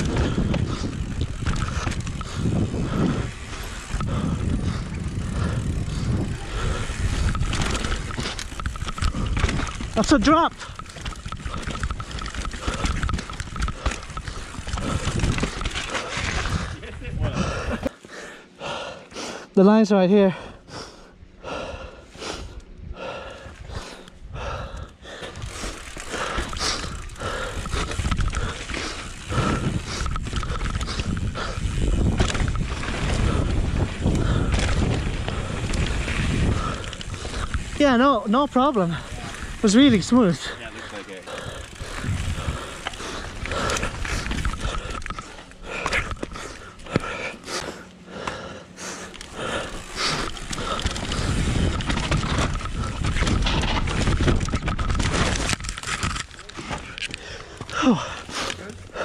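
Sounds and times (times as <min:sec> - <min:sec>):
low rumble: 0:00.0 - 0:17.8
wind buffeting microphone: 0:00.0 - 0:17.8, 0:22.7 - 0:37.8, 0:38.9 - 0:46.5, 0:49.6 - 0:56.1
bike tyres crunching over gravel: 0:00.0 - 0:18.4, 0:24.4 - 0:59.0
bike rattling: 0:00.0 - 0:19.2, 0:19.8 - 0:59.0.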